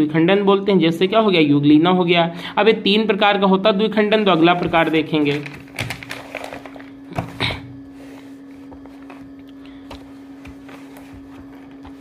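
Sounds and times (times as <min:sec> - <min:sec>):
steady low hum: 0:00.0 - 0:12.0
paper rustling: 0:04.2 - 0:07.3, 0:10.0 - 0:12.0.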